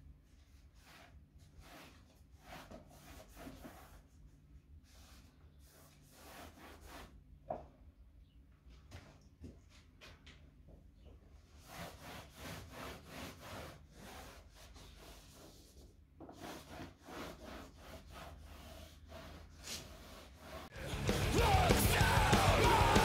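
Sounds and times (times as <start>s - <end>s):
rag rubbing on wall: 0.8s - 4.1s, 11.5s - 20.8s.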